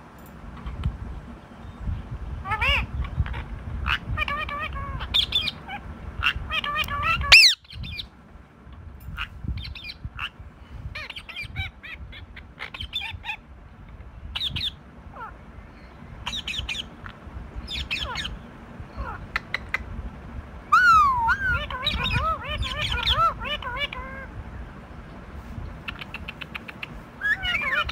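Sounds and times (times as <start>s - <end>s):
parakeet squawking and chattering: 2.4s - 8.1s, 9.2s - 10.4s, 11.0s - 13.5s, 14.3s - 17.0s, 17.6s - 19.9s, 20.7s - 24.4s, 25.8s - 27.9s.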